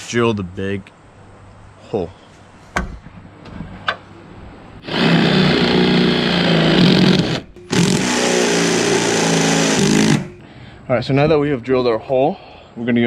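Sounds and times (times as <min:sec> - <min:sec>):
cordless drill boring sheet metal: 0:04.8 - 0:10.4.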